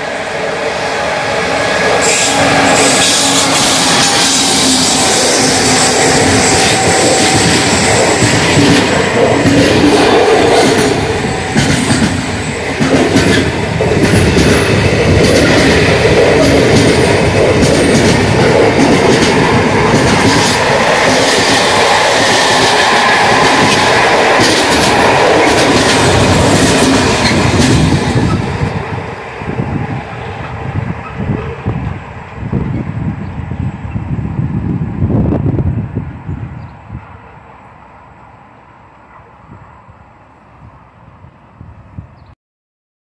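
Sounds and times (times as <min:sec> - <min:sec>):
train rumbling past: 0:00.0 - 0:42.3
wheels clattering over rails: 0:05.5 - 0:28.7.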